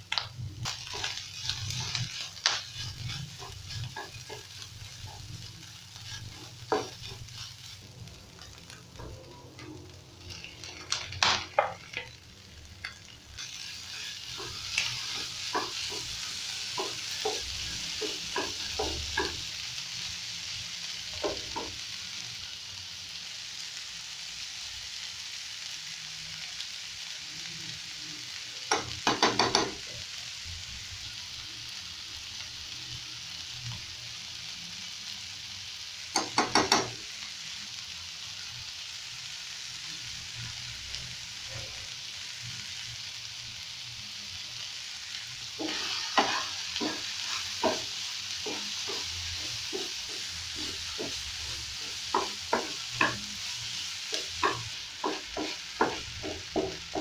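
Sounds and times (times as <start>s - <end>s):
food sizzling in a frying pan: 0.0s - 57.0s
wooden spatula knocking in pan: 6.0s - 7.2s, 14.4s - 19.5s, 21.2s - 21.8s, 28.7s - 29.8s, 36.2s - 37.0s, 45.6s - 51.2s, 52.1s - 53.2s, 54.1s - 57.0s
spoon tapping a pan: 10.7s - 12.1s, 14.4s - 19.5s, 21.2s - 21.8s, 28.7s - 29.8s, 36.1s - 37.0s, 45.6s - 51.2s, 52.1s - 53.3s, 54.1s - 57.0s.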